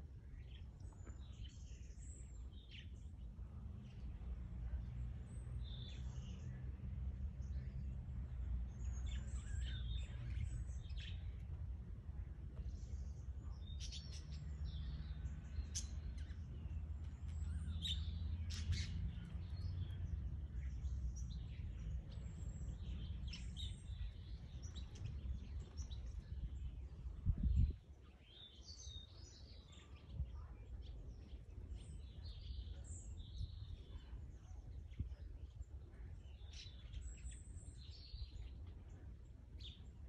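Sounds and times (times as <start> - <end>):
steady low rumble: 0.0 - 28.3.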